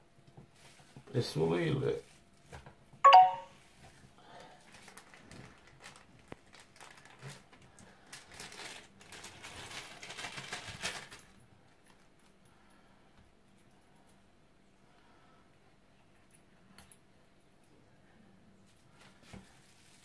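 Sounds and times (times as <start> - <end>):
plastic bag rustling: 4.4 - 12.1, 18.7 - 20.0.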